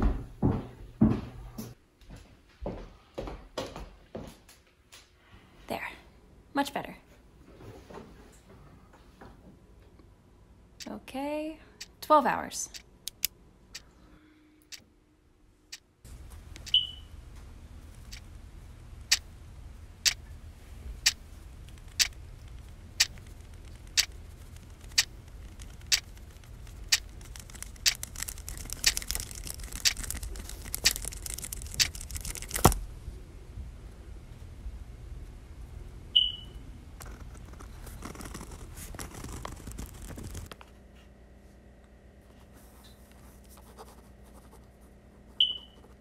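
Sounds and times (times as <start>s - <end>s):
low steady hum: 5.2s - 46.0s
pen clicking: 23.0s - 32.8s.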